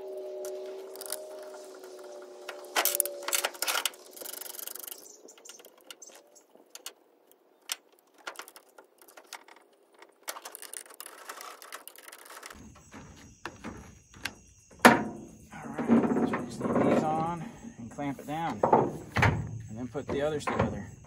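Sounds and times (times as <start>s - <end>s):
small metal clicks and knocks: 2.4s - 15.2s.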